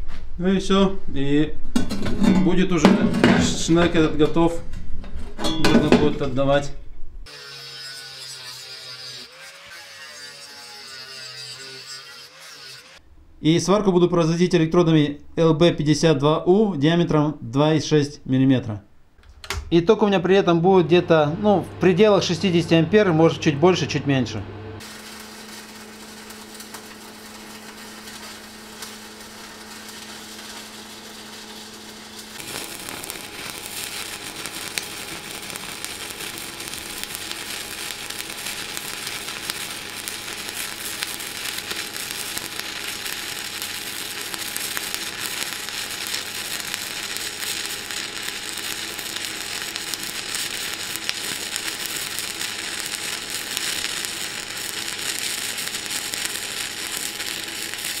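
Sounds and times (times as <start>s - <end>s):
welding arc crackling: 7.3s - 13.0s, 24.8s - 58.0s.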